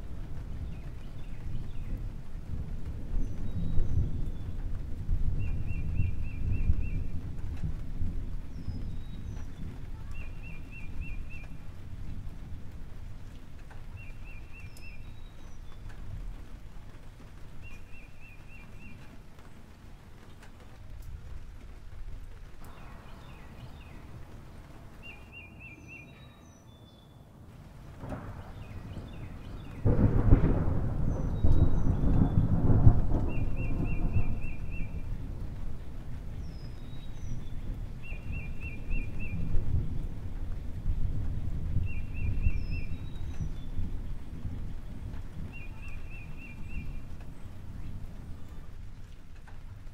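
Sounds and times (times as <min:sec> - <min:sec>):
low rumbling noise: 0:21.2 - 0:49.2.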